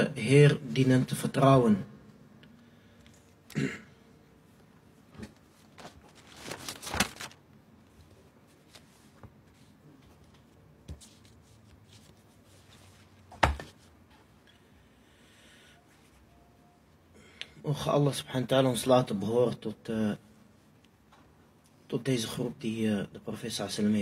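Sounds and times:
paper rustling: 5.1 - 13.8.

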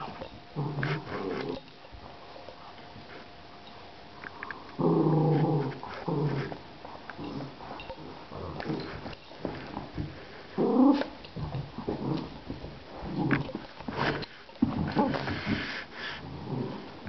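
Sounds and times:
dog growling: 0.0 - 1.7, 4.8 - 6.6, 7.2 - 9.0, 10.6 - 15.4, 16.0 - 17.0.

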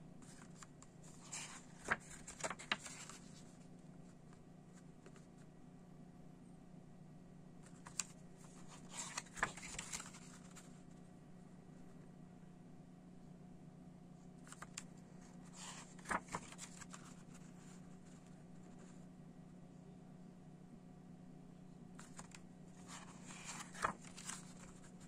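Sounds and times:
faint steady hum: 0.0 - 25.0
paper pages rustling: 0.2 - 3.6, 7.6 - 10.8, 14.5 - 18.3, 22.0 - 25.0.

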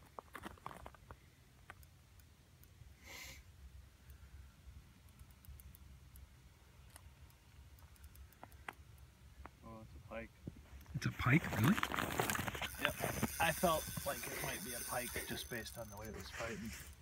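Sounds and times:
soft hiss: 1.1 - 11.1
faint clicks: 5.0 - 9.6.

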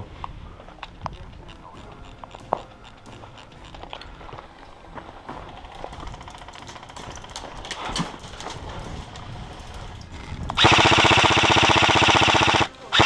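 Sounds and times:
airsoft rifle full-auto burst: 10.6 - 13.0.

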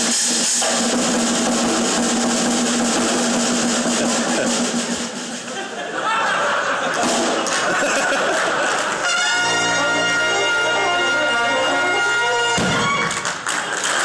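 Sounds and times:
drum stroke: 0.0 - 5.6
crowd chatter: 3.8 - 14.0
people clapping: 6.9 - 9.4, 12.7 - 14.0
brass band chord: 9.0 - 13.1.

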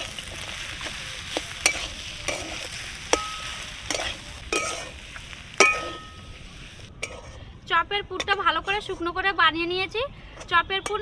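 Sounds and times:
spatula stirring in a wok: 0.0 - 7.4
low sizzle: 0.0 - 9.2
spatula clinking on wok: 3.1 - 4.9, 5.6 - 6.3.

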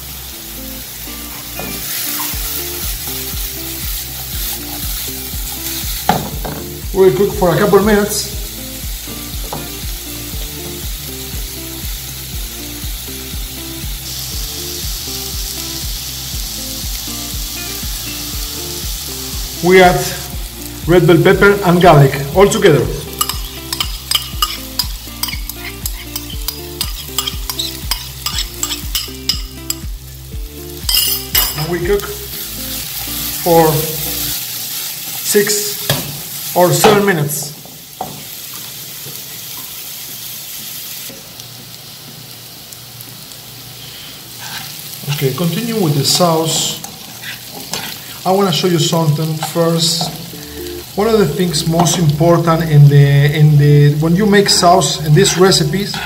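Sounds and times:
food sizzling in a frying pan: 0.0 - 56.0
soft music with low beat: 0.2 - 34.4
spoon clicking and scraping: 23.2 - 29.9, 30.8 - 31.6.

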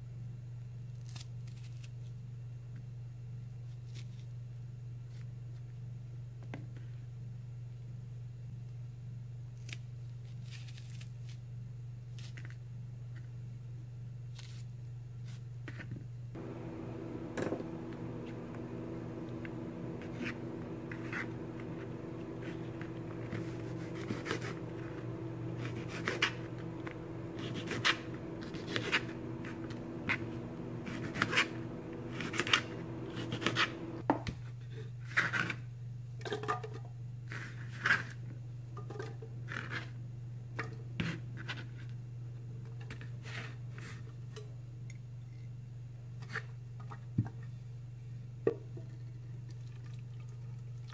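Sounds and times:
steady low hum: 16.2 - 34.1
knife slicing on cutting board: 20.0 - 26.5, 27.3 - 33.8.

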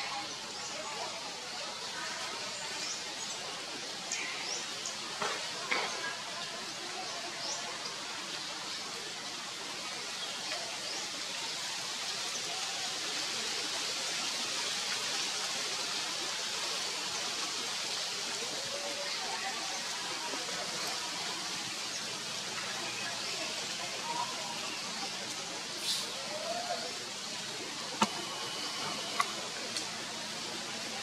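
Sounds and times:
outdoor background hiss: 0.0 - 31.0.

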